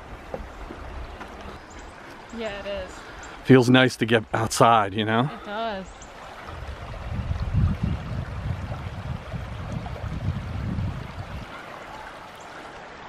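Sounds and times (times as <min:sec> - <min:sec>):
wind buffeting microphone: 0:06.2 - 0:12.3.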